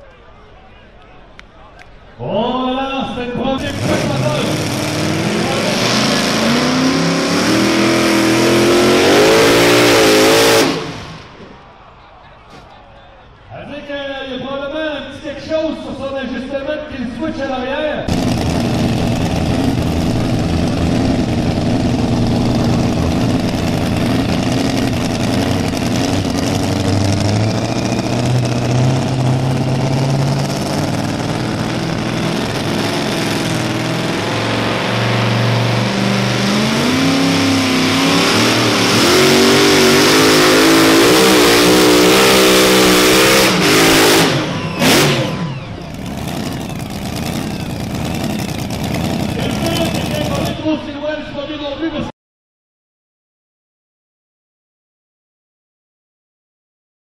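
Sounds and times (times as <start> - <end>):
truck engine revving at full throttle: 3.2 - 11.4, 18.0 - 50.6.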